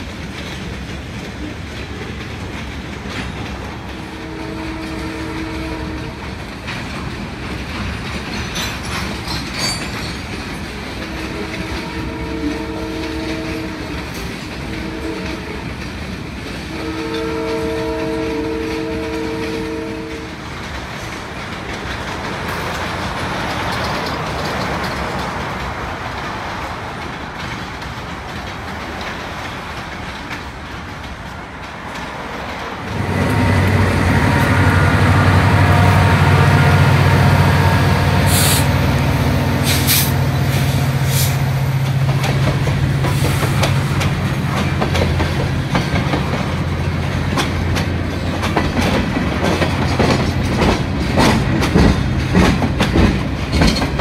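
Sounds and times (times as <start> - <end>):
deep rumble of freight cars: 0.0 - 54.0
freight cars rolling by: 0.0 - 54.0
locomotive horn chord: 4.0 - 6.2, 11.1 - 13.9, 14.7 - 15.6, 16.7 - 20.3, 32.9 - 40.5.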